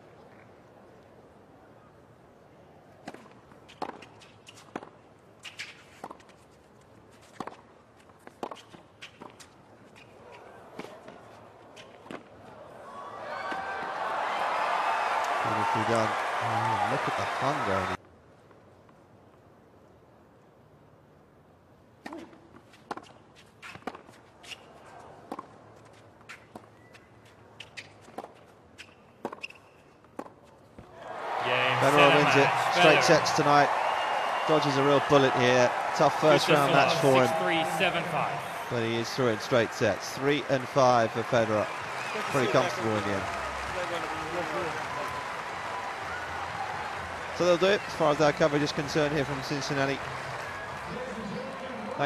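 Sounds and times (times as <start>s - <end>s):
low stadium hum: 0.0s - 52.0s
tennis ball bouncing: 8.2s - 9.5s, 27.6s - 30.9s.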